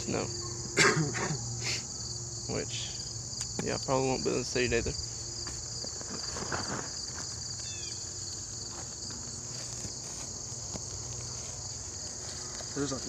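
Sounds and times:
high-pitched insect chorus: 0.0 - 13.0
footsteps on gravel: 5.3 - 13.0.

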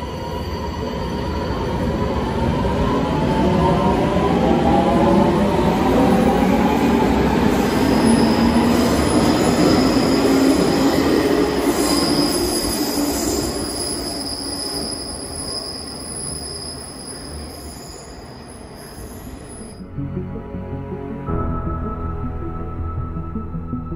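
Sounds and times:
high wheel squeal: 11.7 - 19.8.

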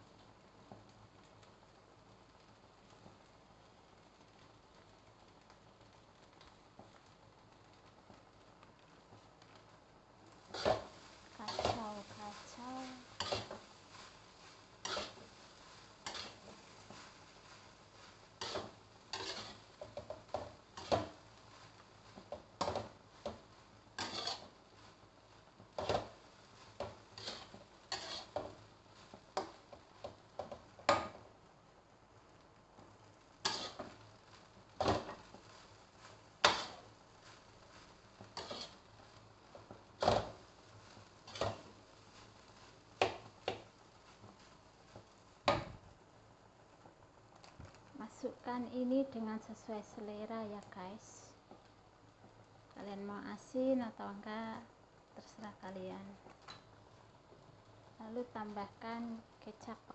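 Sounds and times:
spatula scraping and knocking wok: 10.2 - 31.4, 32.7 - 45.9, 56.2 - 57.4.

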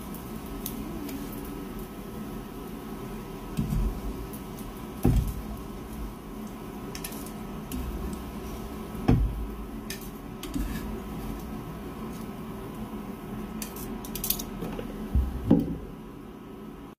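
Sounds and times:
faint steady hum: 0.0 - 16.9
frying pan knocks: 5.0 - 5.4, 9.0 - 9.4
metal tongs clicking against pan: 6.9 - 7.4, 13.6 - 14.6.

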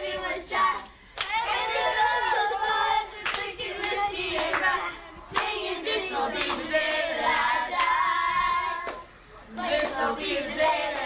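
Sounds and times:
children singing: 0.0 - 11.0
sharp hand claps: 1.2 - 1.9, 3.2 - 4.7, 8.8 - 10.0.

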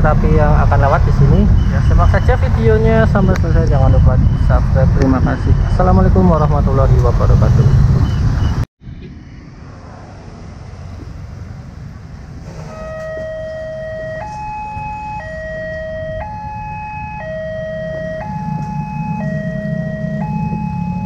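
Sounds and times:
road traffic: 0.0 - 21.0
level crossing two-tone warning signal: 1.3 - 4.6, 12.6 - 21.0.

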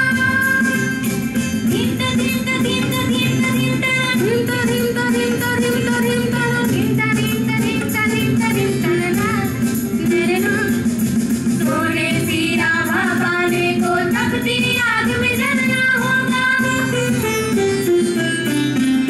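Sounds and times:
acoustic guitar: 0.0 - 19.0
hand drums: 0.0 - 19.0
keyboard: 0.0 - 19.0
sitar: 0.0 - 19.0
women singing together: 1.7 - 10.8, 11.6 - 17.0.

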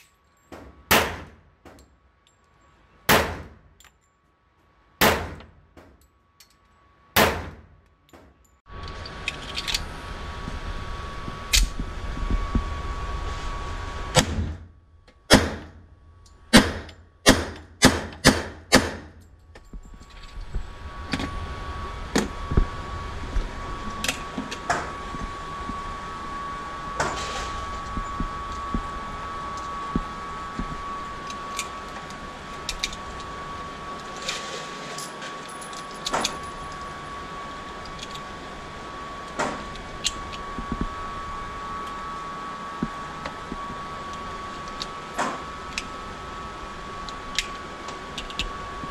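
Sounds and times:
steady hum with high tone: 0.0 - 48.9
pistol shots: 0.9 - 1.4, 3.1 - 3.6, 5.0 - 5.4, 7.2 - 7.6, 16.5 - 19.1.

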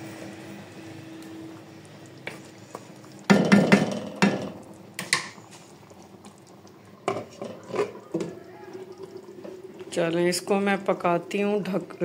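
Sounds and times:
utensils knocking on cooking pan: 3.3 - 5.3.

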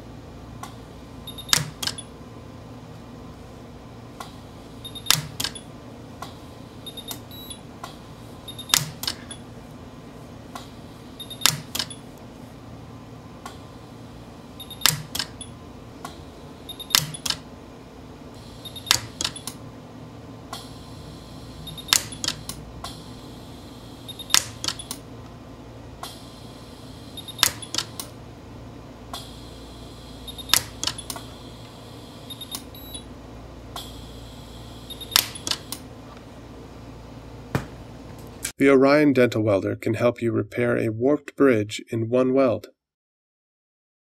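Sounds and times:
low steady hum: 0.0 - 41.1
dental welder snapping cracks: 18.9 - 19.6, 21.9 - 22.6, 24.3 - 25.0, 27.4 - 28.1, 30.5 - 31.2, 35.1 - 35.8.

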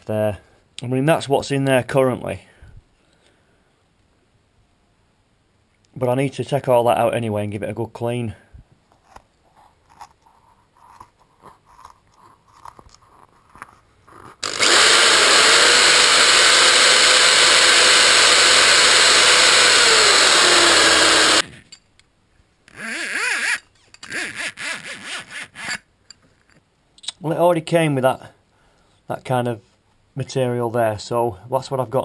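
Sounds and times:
electric drill running: 14.4 - 21.5.

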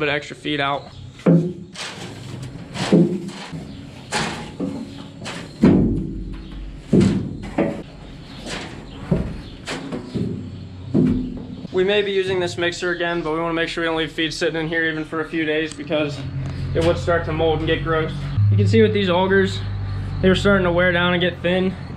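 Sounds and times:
broom bristles scraping metal: 1.2 - 10.6.

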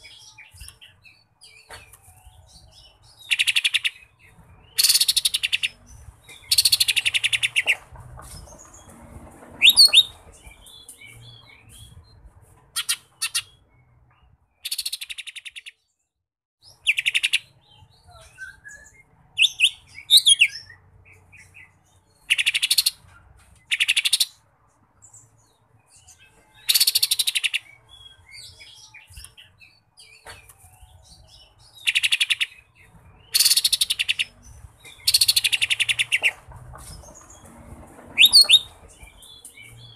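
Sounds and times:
bird buzzy rattling trills: 35.0 - 39.8
bird whistled glides: 38.2 - 38.7.

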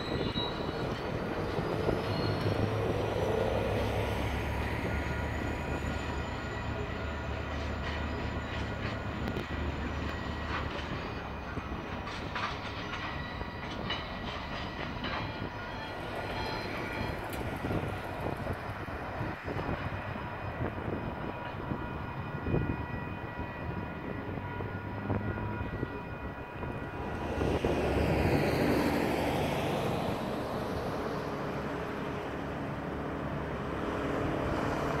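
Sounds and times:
diesel locomotive engine hum: 0.0 - 35.0
road vehicle passing: 1.1 - 6.2, 26.8 - 35.0.

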